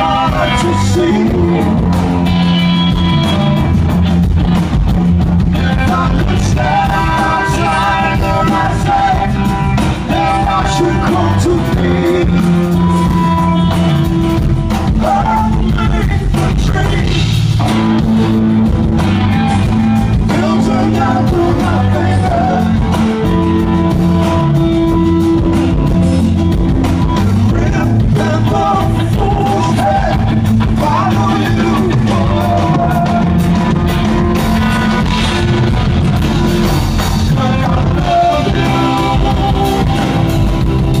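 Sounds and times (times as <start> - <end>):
man singing: 0.0 - 2.1, 5.6 - 13.4, 14.8 - 17.4, 20.1 - 23.1, 27.4 - 33.8, 37.1 - 41.0
rock band playing: 0.0 - 41.0.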